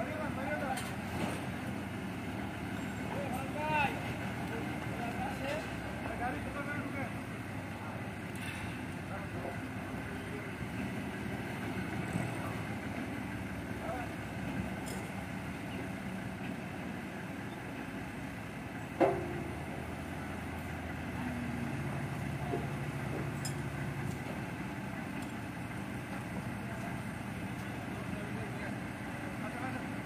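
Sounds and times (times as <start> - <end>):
diesel engines idling: 0.0 - 30.0.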